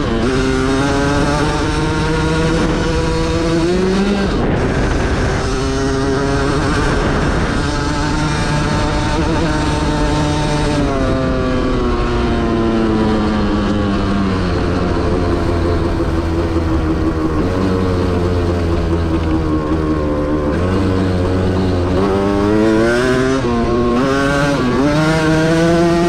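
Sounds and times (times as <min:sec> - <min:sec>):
dirt bike engine running: 0:00.0 - 0:26.0.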